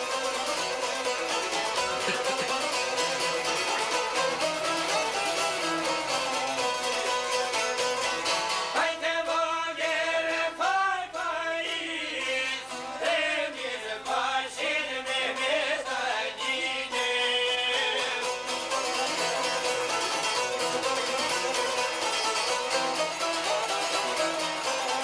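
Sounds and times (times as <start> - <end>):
violin: 0.0 - 8.6, 16.4 - 25.0
plucked string instruments: 0.0 - 25.0
man singing: 8.8 - 18.5.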